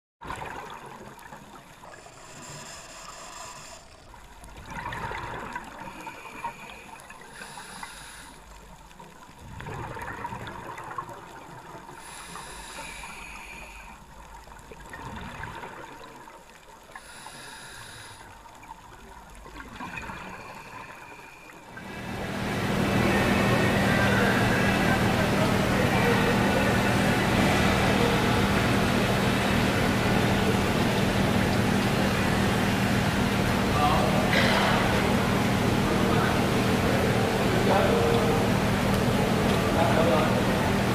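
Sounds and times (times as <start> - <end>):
gurgling exhaled bubbles: 0.2 - 17.4, 18.0 - 24.0, 24.6 - 40.9
regulator hissing inhale: 1.9 - 4.2, 5.8 - 8.6, 12.0 - 14.1, 17.0 - 18.4.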